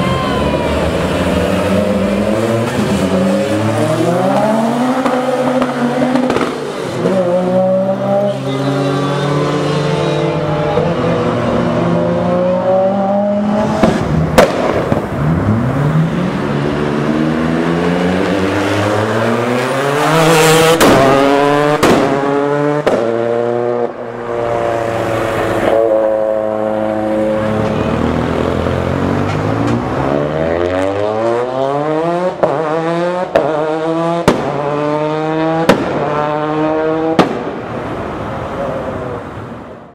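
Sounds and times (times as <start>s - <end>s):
rally car engines revving: 0.0s - 39.9s
exhaust bangs and pops: 4.3s - 6.8s, 13.6s - 15.6s, 20.7s - 23.4s, 32.3s - 37.8s.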